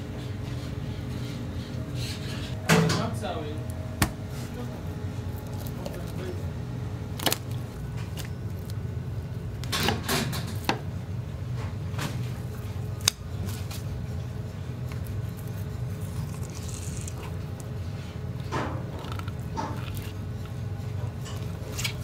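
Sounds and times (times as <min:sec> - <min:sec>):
low hum: 0:00.0 - 0:09.7.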